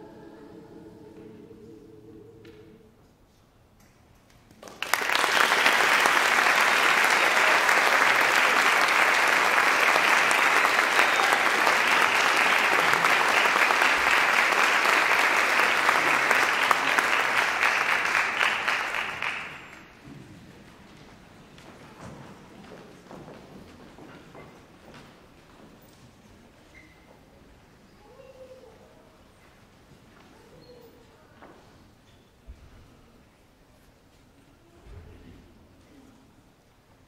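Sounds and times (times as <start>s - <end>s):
audience applauding: 4.5s - 20.0s.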